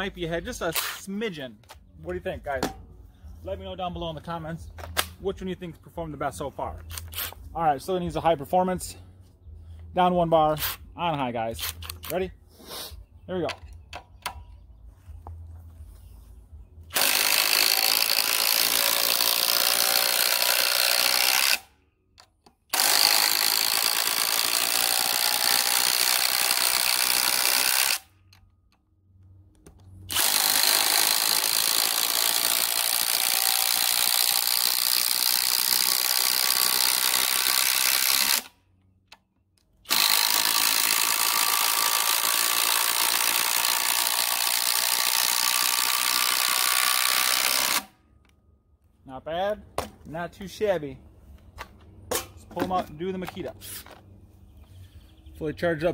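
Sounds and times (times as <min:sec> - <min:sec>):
impact driver driving fasteners: 0:39.8 - 0:47.9.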